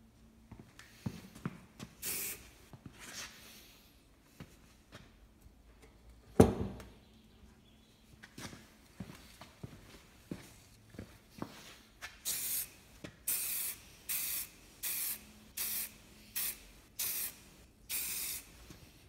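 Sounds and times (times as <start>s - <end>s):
aerosol spray can hissing: 2.0s - 2.4s, 12.3s - 12.7s, 13.3s - 18.5s.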